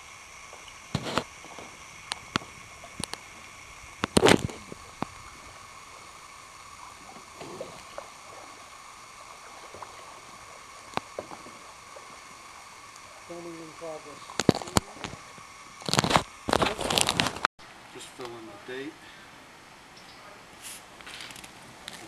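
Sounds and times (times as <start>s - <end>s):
paddle splashing in water: 0.5s - 17.4s.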